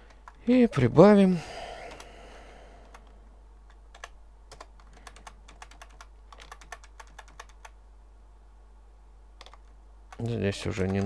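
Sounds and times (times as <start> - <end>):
low steady hum: 0.0 - 11.0
keyboard typing clicks: 3.7 - 7.8, 9.4 - 11.0.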